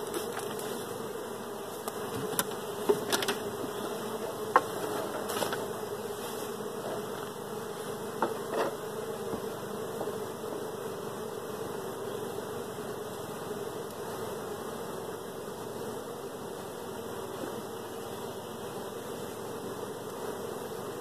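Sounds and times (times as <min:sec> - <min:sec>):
honey bees buzzing: 0:00.0 - 0:21.0
wooden hive box clicks and knocks: 0:01.8 - 0:05.7, 0:08.2 - 0:10.2.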